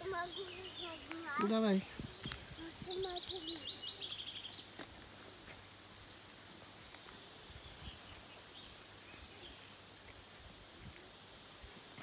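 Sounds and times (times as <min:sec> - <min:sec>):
songbird trilling: 0:00.1 - 0:04.7.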